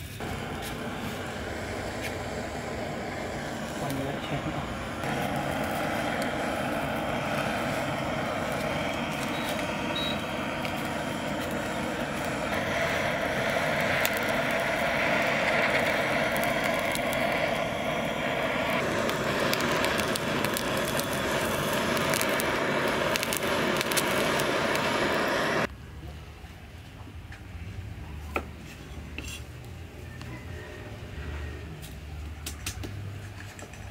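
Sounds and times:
blowtorch hissing: 0.0 - 25.7.

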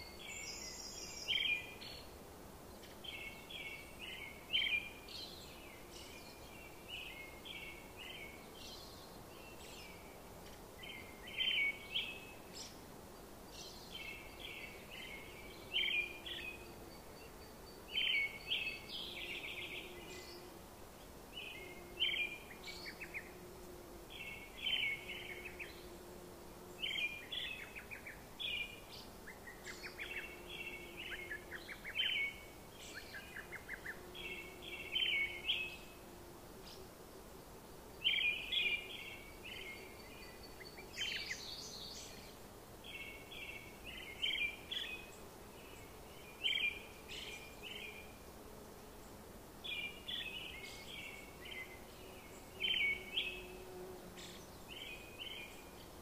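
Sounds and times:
steady background hiss: 0.0 - 56.0
birds chirping: 49.6 - 53.6.

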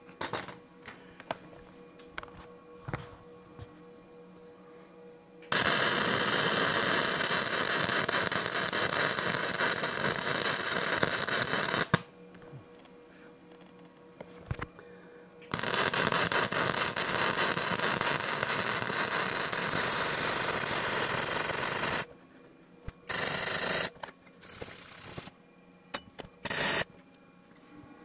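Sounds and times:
electric welding arc crackling: 5.5 - 12.1, 15.5 - 22.1, 23.0 - 25.3, 26.4 - 26.9.

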